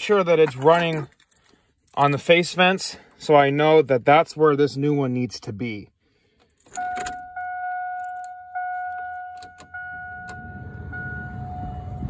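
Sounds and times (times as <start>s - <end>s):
dashboard warning chime: 6.7s - 12.0s.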